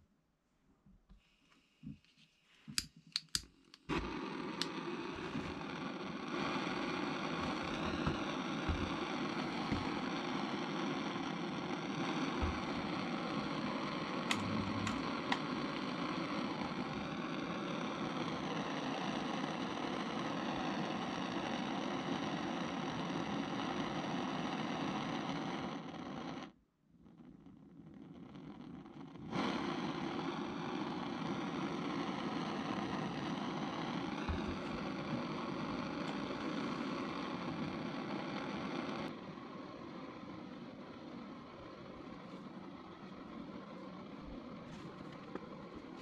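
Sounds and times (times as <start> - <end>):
gas torch flame rushing: 2.6 - 26.6, 27.2 - 46.0
torch igniter clicks: 2.7 - 17.2, 33.2 - 37.2.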